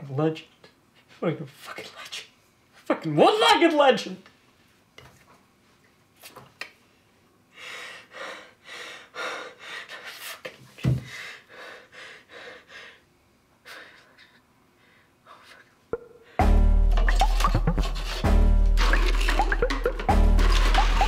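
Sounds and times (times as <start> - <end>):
man breathing hard and sobbing: 11.0 - 15.6.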